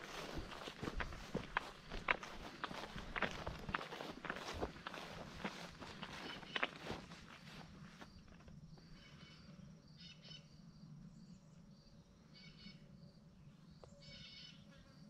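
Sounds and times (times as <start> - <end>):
faint insect drone: 0.0 - 15.0
bird chirps: 13.8 - 14.6.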